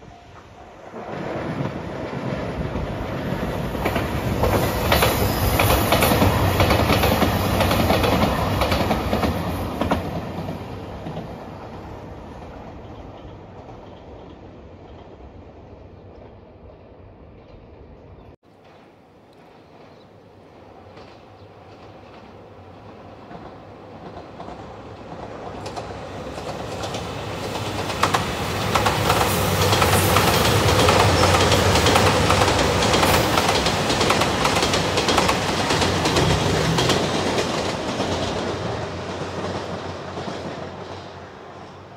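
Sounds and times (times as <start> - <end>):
diesel train passing: 0.0 - 41.9
train wheels clicking over rail joints: 3.7 - 11.4, 20.9 - 41.1.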